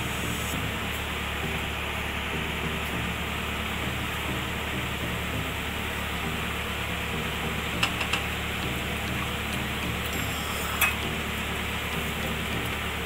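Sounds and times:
steady hiss: 0.0s - 1.2s, 8.0s - 12.9s.

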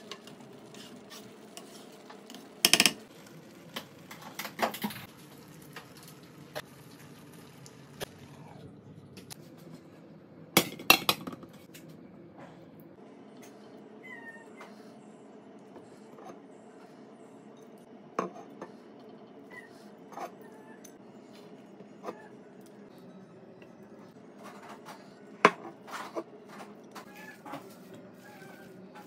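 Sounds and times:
utensils clattering against frying pan: 0.0s - 3.0s.

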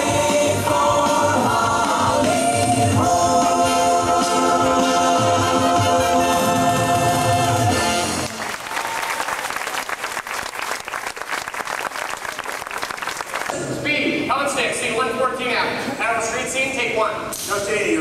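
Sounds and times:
singers and band holding a chord: 0.0s - 8.4s
audience applause: 8.1s - 13.6s.

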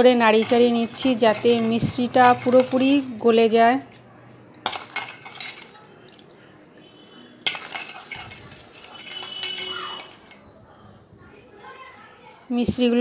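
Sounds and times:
spoon stirring in metal bowl: 0.0s - 6.3s, 7.4s - 10.5s.

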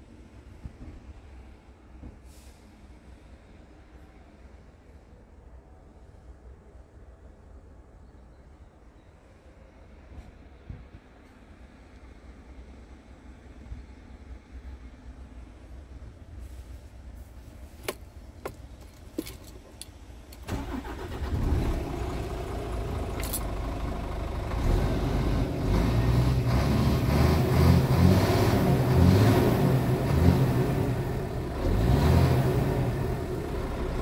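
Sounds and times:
diesel engine revving: 20.5s - 34.0s.

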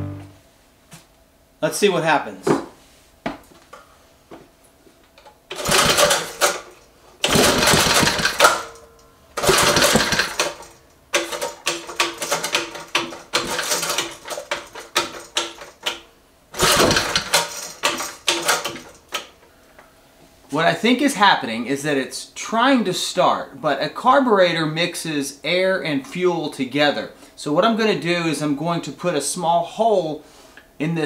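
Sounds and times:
recoil starter pulls: 5.5s - 16.0s, 16.6s - 19.4s
engine sputtering pops: 7.2s - 8.6s, 9.4s - 10.7s.

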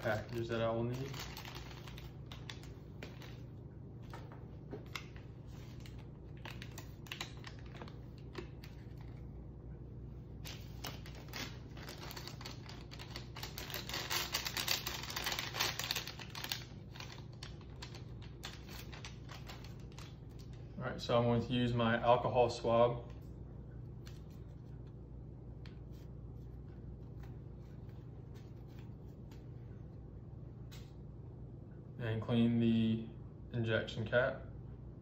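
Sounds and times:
plastic and paper packages crinkling: 0.0s - 3.5s, 4.8s - 9.3s, 10.4s - 20.7s
low steady hum: 0.0s - 35.0s.

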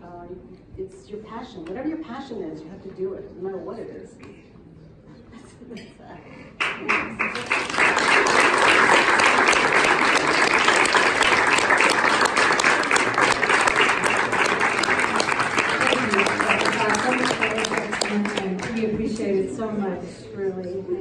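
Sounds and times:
audience applause: 6.6s - 19.3s.

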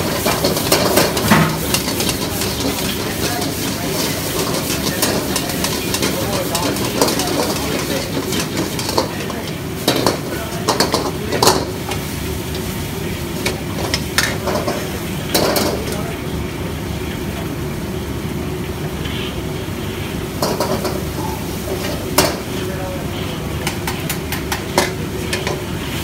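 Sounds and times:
metal utensils scraping a wok: 0.0s - 12.7s
noodles sizzling in a wok: 0.0s - 26.0s.

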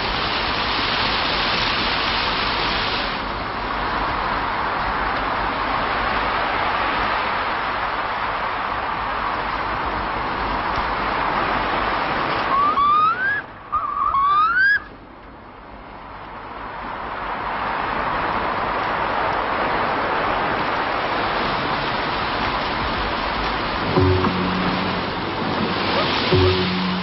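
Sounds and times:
steady rushing noise: 0.0s - 13.9s, 14.8s - 27.0s
rising whistles: 12.4s - 14.9s.

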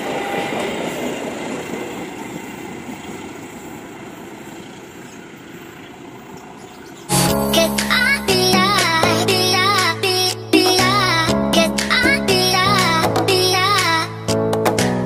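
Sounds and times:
train coaches rolling on rails: 0.0s - 7.1s.

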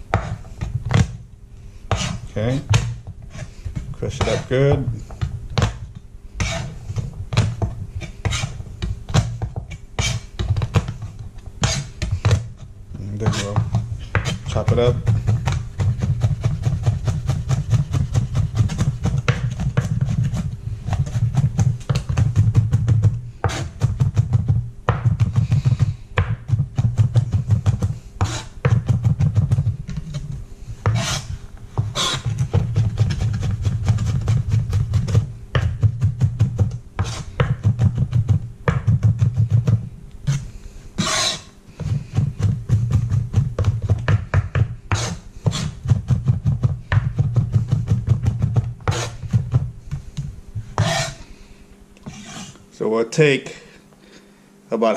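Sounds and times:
knife chopping on cutting board: 0.1s - 1.2s, 1.9s - 51.2s.

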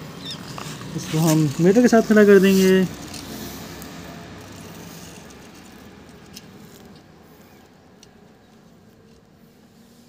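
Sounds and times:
toy car wheels rolling on concrete: 0.0s - 10.0s
small clicks: 3.0s - 9.4s.

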